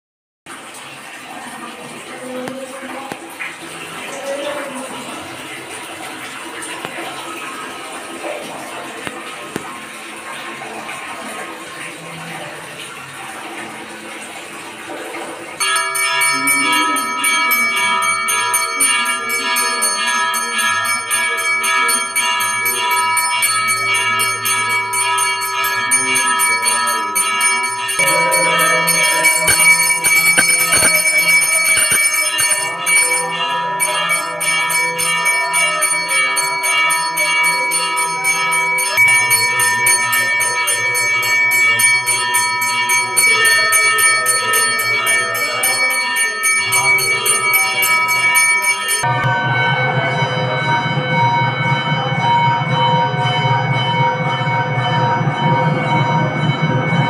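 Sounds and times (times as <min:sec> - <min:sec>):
bells ringing rapidly: 0:15.6 - 0:57.0.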